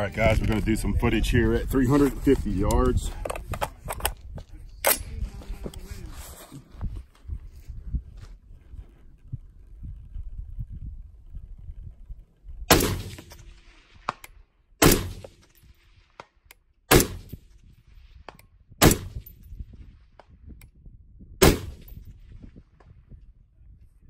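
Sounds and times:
suppressed rifle shots: 12.7 - 15.5, 16.9 - 17.4, 18.8 - 19.3, 21.4 - 21.9.

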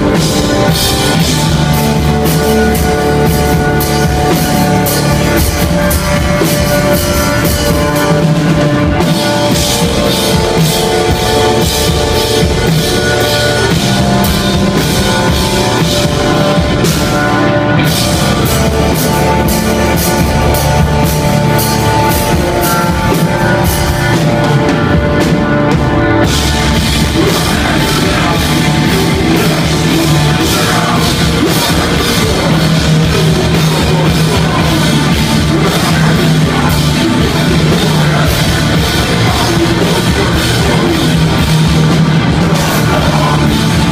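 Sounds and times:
distorted electric guitars: 0.0 - 43.9
drum kit beat: 0.0 - 43.9.

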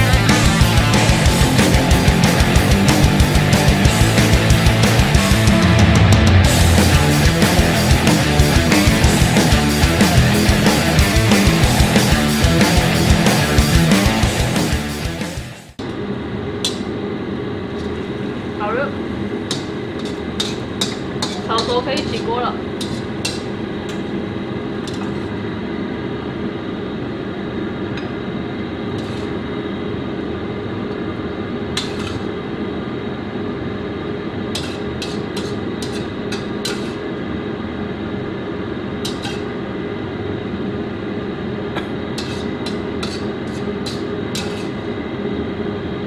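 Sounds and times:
low hum: 0.0 - 15.0
metal spatula scraping wok: 19.5 - 24.1, 24.8 - 25.3, 29.0 - 29.4, 31.8 - 32.3, 34.5 - 37.0, 39.0 - 39.5, 42.2 - 44.8.

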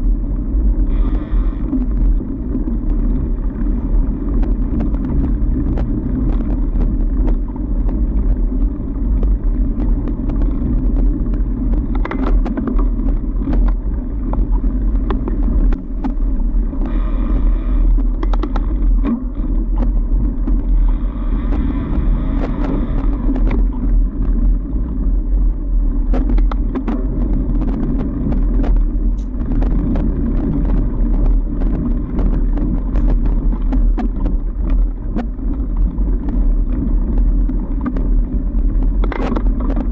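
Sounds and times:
bike clicks and rattles: 0.0 - 39.9
bike rolling rumble: 0.0 - 39.9.

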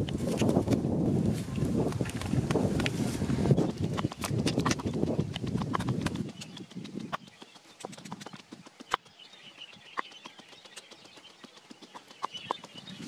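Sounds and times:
twigs clicking and snapping: 0.0 - 3.0.

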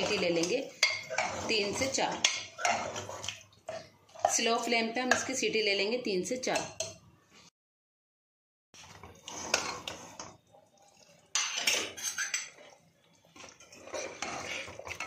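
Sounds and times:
ladle scraping metal pot: 0.0 - 5.4, 8.8 - 15.0.

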